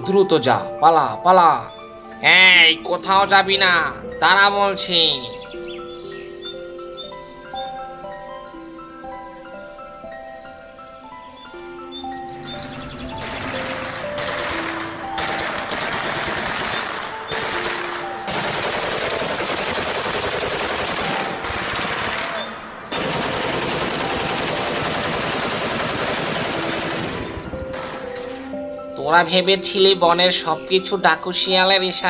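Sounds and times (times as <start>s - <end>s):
faint background music: 0.0s - 32.0s
machine-gun automatic fire: 13.2s - 28.3s.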